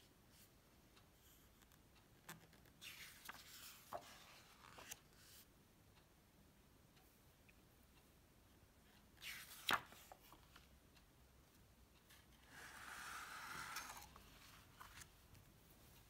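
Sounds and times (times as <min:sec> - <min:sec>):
book pages rustling: 0:02.4 - 0:05.5, 0:09.2 - 0:10.7, 0:12.6 - 0:15.4.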